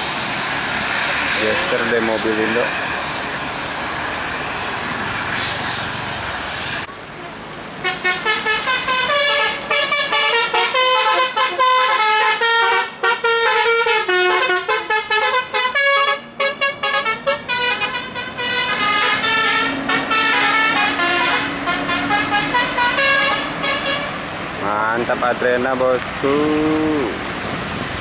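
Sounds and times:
bus horn playing melody: 0:07.2 - 0:24.2.

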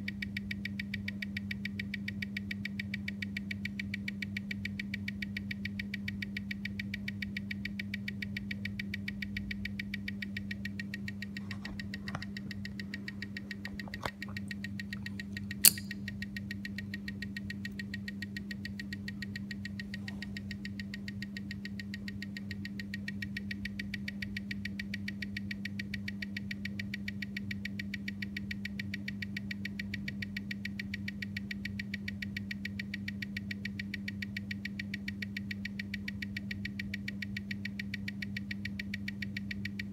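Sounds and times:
steady low hum: 0:00.0 - 0:25.6
watch ticking fast: 0:00.0 - 0:39.9.

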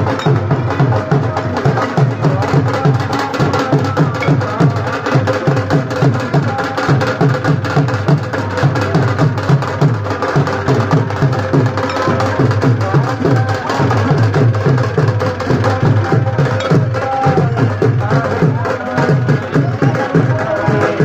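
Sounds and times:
music with fast drum beat: 0:00.0 - 0:21.0.

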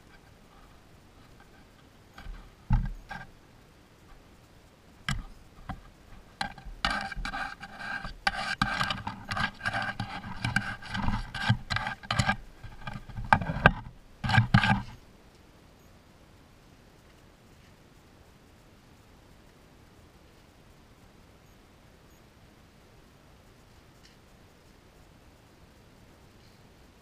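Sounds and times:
animals scratching camera: 0:00.0 - 0:03.4, 0:05.0 - 0:15.0.

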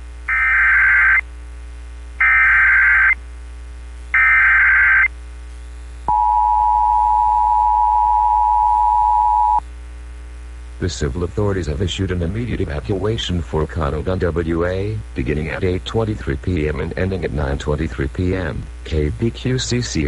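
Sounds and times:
two-tone attention signal: 0:06.1 - 0:09.6.

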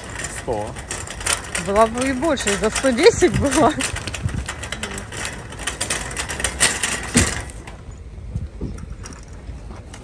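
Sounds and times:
shopping cart rattling over asphalt: 0:00.0 - 0:08.0.

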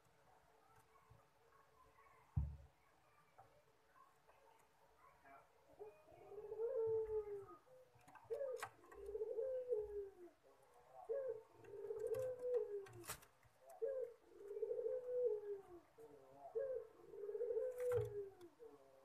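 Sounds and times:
dove cooing: 0:05.8 - 0:19.0.

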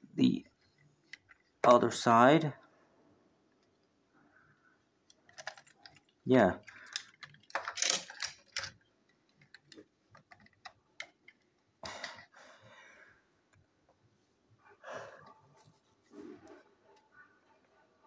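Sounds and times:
plastic toy trains clicking: 0:05.3 - 0:11.4.

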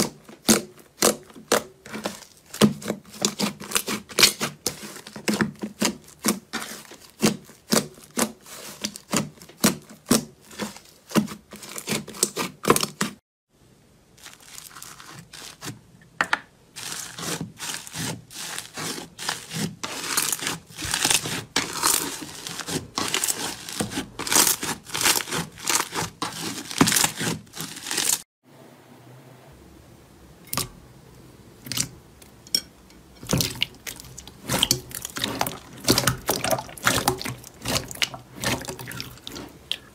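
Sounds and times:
hands squishing sticky slime: 0:00.0 - 0:13.2, 0:16.8 - 0:28.2, 0:33.2 - 0:39.9.

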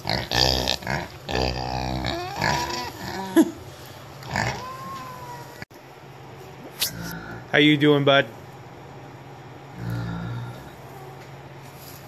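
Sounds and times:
pig grunting: 0:00.0 - 0:03.5, 0:04.2 - 0:05.0, 0:06.9 - 0:07.5, 0:09.7 - 0:11.0.

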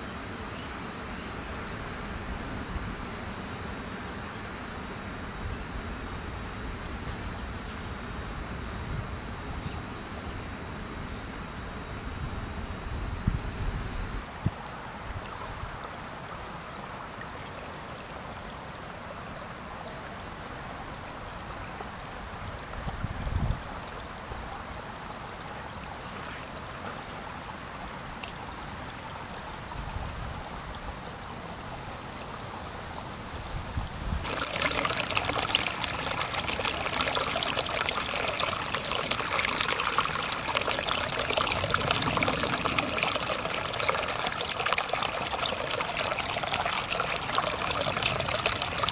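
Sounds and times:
brook trickling over stones: 0:14.2 - 0:48.9.

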